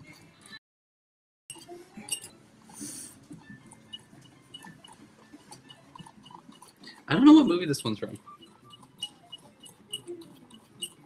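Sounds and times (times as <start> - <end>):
spoon clinking against ceramic bowl: 1.5 - 2.4, 3.7 - 11.0.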